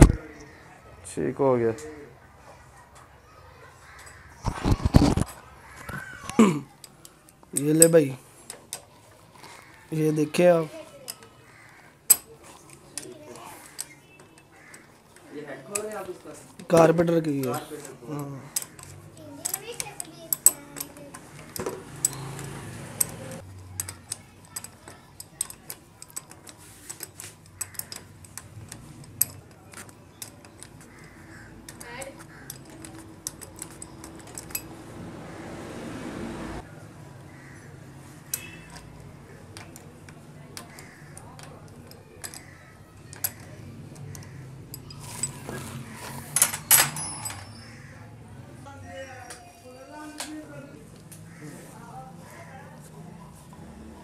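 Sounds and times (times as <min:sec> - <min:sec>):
metallic clicks of hand tools: 0:18.2 - 0:34.8, 0:38.3 - 0:45.5
metallic clinks: 0:18.6 - 0:35.0, 0:40.6 - 0:45.5, 0:46.3 - 0:47.8.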